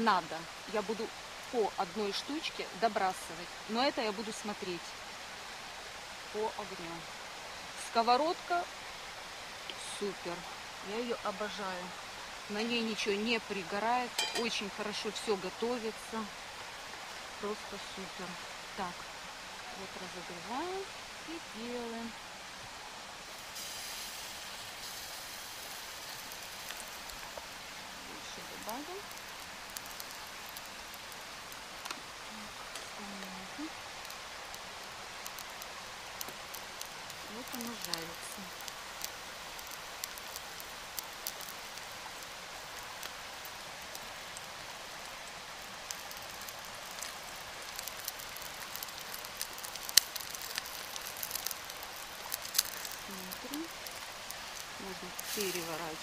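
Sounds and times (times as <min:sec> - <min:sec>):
batter sizzling in hot oil: 0:12.4 - 0:16.1, 0:23.2 - 0:56.0
pops and crackles: 0:28.3 - 0:32.1, 0:35.2 - 0:44.5, 0:45.8 - 0:56.0.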